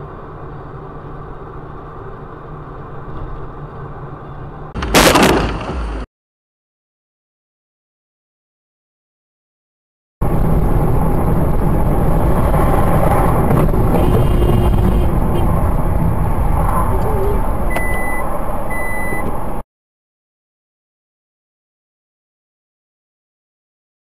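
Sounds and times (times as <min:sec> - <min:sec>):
road and engine rumble in car: 0:00.0 - 0:06.1, 0:10.2 - 0:19.6
short high beeps: 0:17.7 - 0:19.3.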